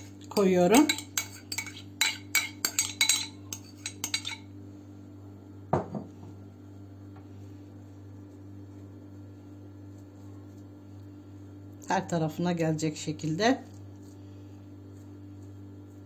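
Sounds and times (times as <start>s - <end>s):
spoon spreading filling: 0.0s - 4.5s
metal spoon clinking on glass bowl: 0.3s - 4.5s.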